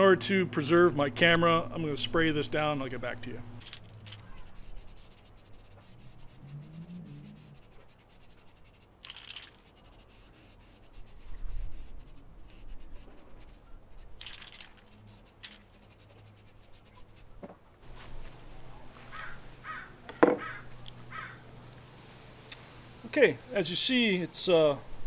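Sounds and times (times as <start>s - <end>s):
spray can hissing: 3.6s - 17.2s
faint rapid ticking and rubbing: 3.6s - 17.3s.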